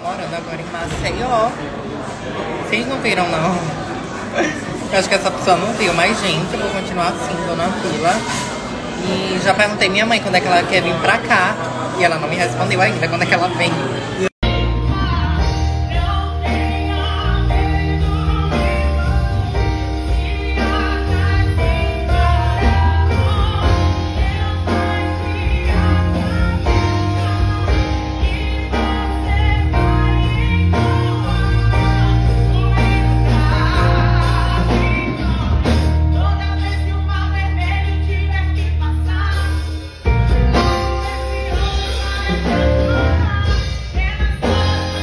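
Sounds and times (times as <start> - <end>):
electric keyboard with deep bass: 13.9 - 45.0
woman singing gospel: 14.4 - 45.0.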